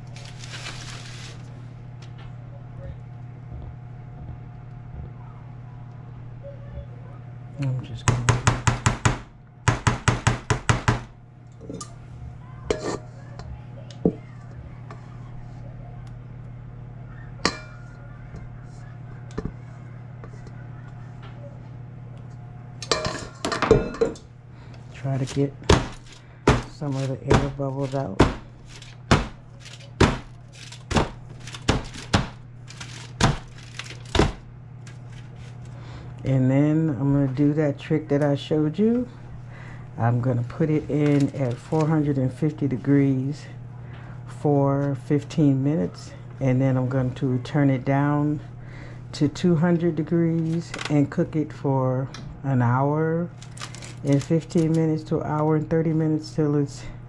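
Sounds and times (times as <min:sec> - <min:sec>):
low hum: 0:00.0 - 0:07.9
steady low hum: 0:00.0 - 0:57.0.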